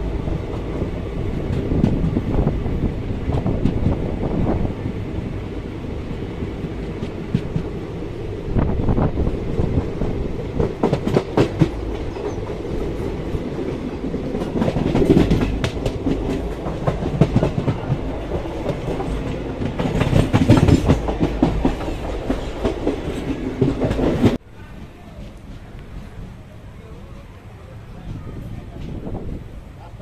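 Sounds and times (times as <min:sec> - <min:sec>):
train wheels clattering over rail joints: 0:09.5 - 0:24.4.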